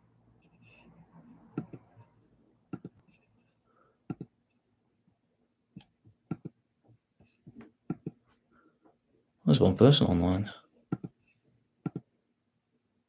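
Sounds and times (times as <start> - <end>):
computer mouse clicking: 5.8 - 6.5, 11.8 - 12.1.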